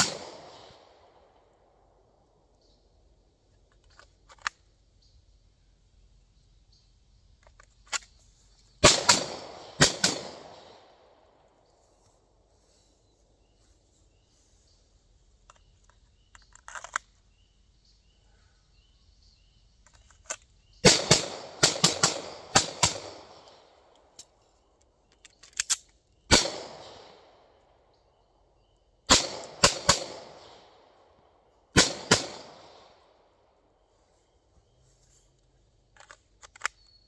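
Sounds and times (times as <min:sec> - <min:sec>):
pistol shots with echo: 0:00.0 - 0:00.9, 0:08.8 - 0:11.0, 0:20.8 - 0:23.5, 0:26.3 - 0:27.3, 0:29.1 - 0:30.8, 0:31.7 - 0:33.0.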